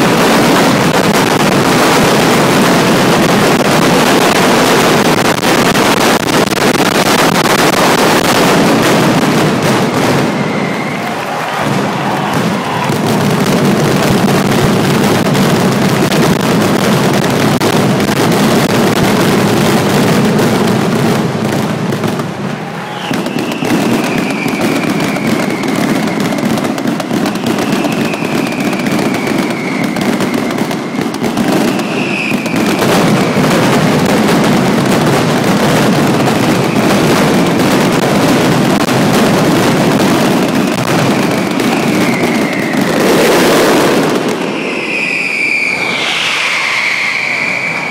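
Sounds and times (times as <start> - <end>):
firecracker bangs: 0.0 - 47.9
falling whistles: 9.7 - 12.9, 22.6 - 33.0, 41.2 - 47.9.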